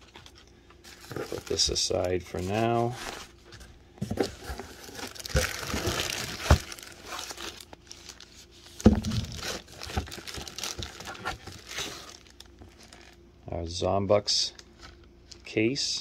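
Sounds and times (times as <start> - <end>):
plastic wrapping crinkling: 4.2 - 13.2.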